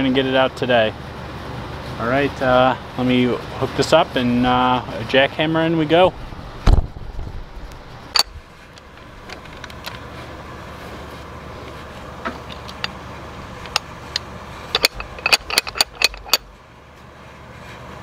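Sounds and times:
steady low hum: 0.0s - 18.0s
sharp metal clicks and knocks: 8.1s - 10.0s, 12.2s - 13.0s, 13.6s - 16.5s.

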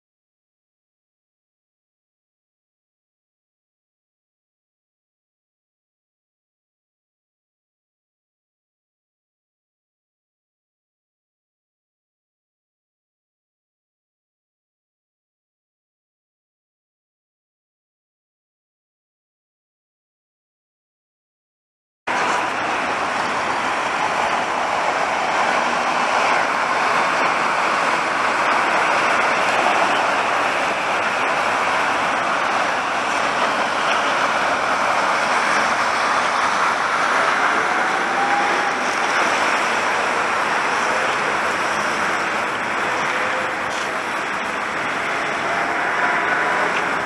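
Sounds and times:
cars passing on wet streets: 22.1s - 47.0s.

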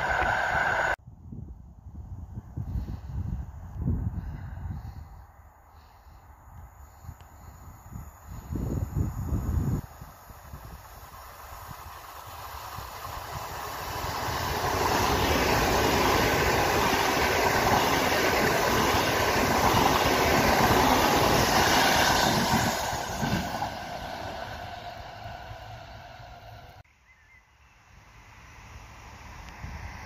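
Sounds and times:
electric train passing at speed: 0.0s - 1.0s, 8.0s - 26.8s, 27.9s - 30.0s.

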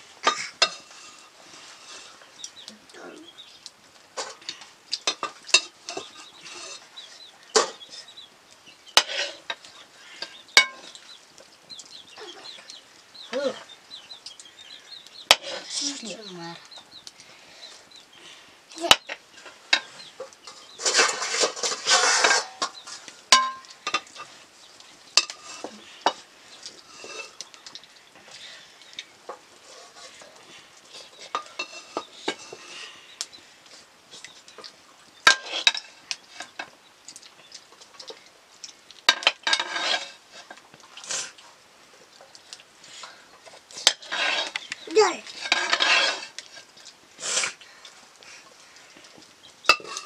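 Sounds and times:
utensil scraping cooking pot: 0.2s - 2.7s, 4.2s - 8.2s, 8.8s - 11.2s, 15.1s - 16.2s, 18.9s - 24.4s, 25.1s - 33.2s, 34.2s - 36.7s, 39.1s - 41.4s, 42.3s - 48.4s, 49.0s - 50.0s.

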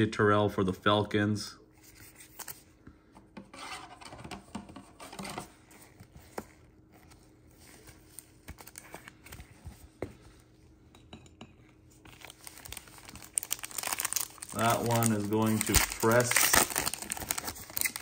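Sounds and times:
plastic rustling: 12.0s - 18.0s.

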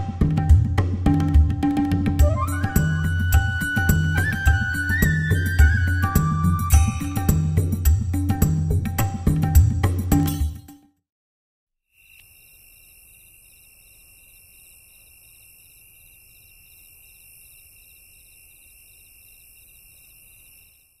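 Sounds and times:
crickets chirping: 12.0s - 21.0s.

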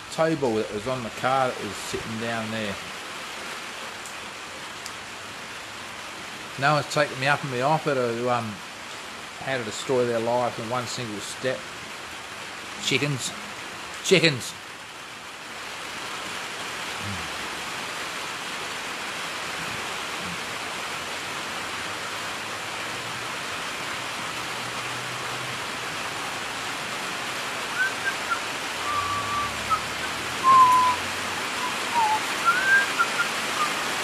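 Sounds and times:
heavy rain falling: 0.0s - 34.0s
short high calls or whistles: 27.8s - 31.0s, 31.6s - 33.8s.

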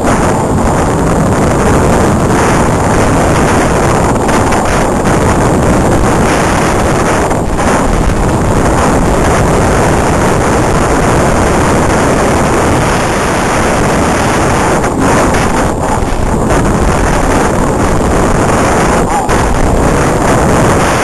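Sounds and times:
wind on microphone: 0.0s - 21.0s.

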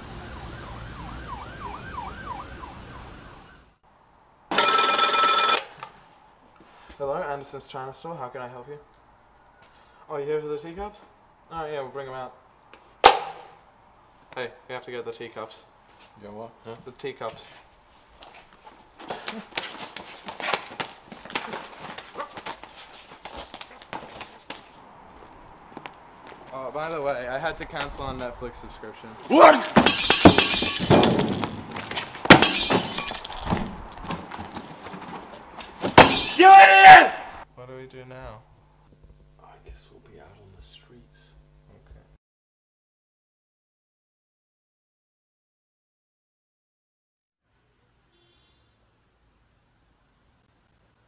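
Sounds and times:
faint emergency siren wailing: 0.0s - 3.8s
outdoor background noise: 0.0s - 42.2s, 47.4s - 51.0s
telephone ringing loudly: 4.5s - 5.7s.

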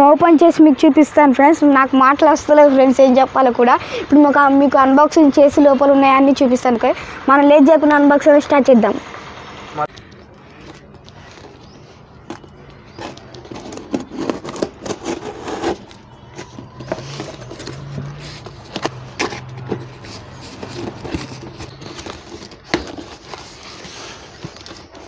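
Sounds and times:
packing tape ripping off cardboard: 13.0s - 25.0s.

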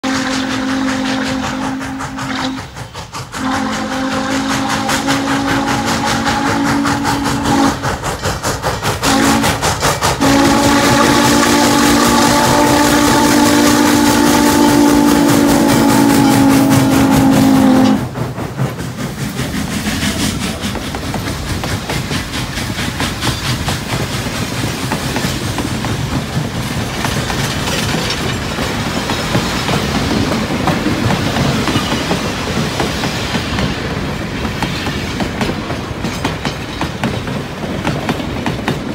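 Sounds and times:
steam locomotive whistle: 0.0s - 8.0s, 8.9s - 18.2s
train wheels clicking over rail joints: 0.0s - 38.9s.

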